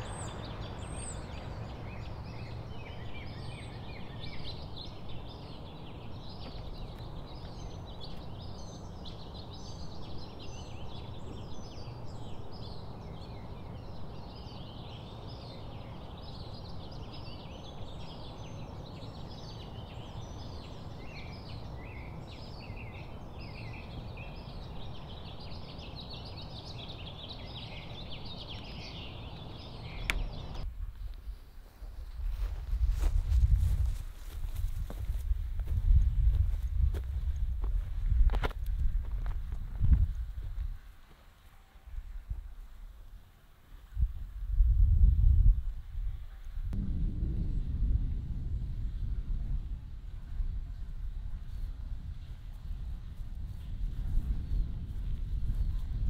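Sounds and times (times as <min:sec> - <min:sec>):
small birds chirping: 0:00.0 - 0:42.3
low rumble: 0:46.6 - 0:56.0.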